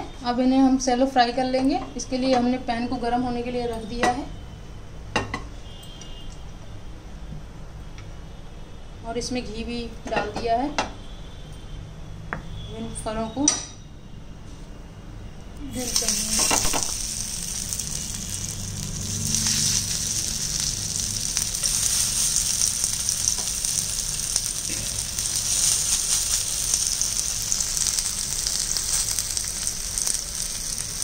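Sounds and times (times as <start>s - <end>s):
food sizzling in hot fat: 15.7s - 31.0s.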